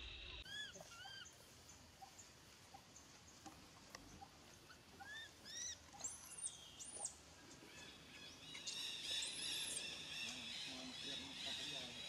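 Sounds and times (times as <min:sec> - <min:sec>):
baby monkey squealing: 0:00.4 - 0:01.3, 0:05.0 - 0:05.7.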